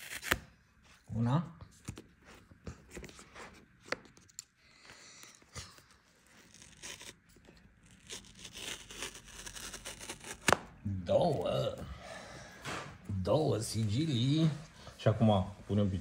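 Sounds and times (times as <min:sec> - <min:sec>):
paper tab tearing: 0:00.0 - 0:00.5, 0:06.3 - 0:10.8.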